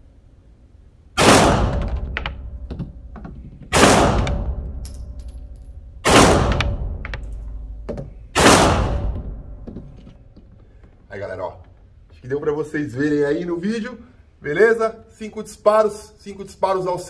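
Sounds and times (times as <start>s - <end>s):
pistol shots: 1.2s - 2.7s, 3.7s - 5.4s, 6.0s - 7.1s, 8.3s - 9.5s.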